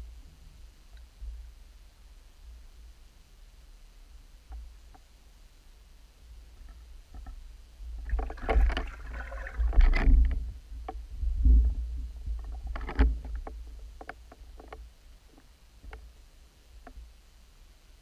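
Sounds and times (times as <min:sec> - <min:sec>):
faint clicks: 0:00.9 - 0:01.2
underwater splashing and swirling: 0:08.0 - 0:10.4.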